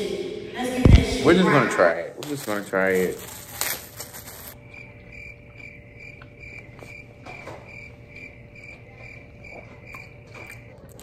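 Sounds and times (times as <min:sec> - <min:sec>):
crickets chirping: 0:04.3 - 0:10.9.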